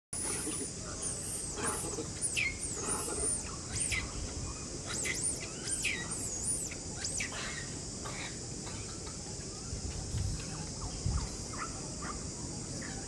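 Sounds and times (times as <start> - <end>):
high squeaky calls: 0.2 - 8.4
high insect-like drone: 0.2 - 12.1.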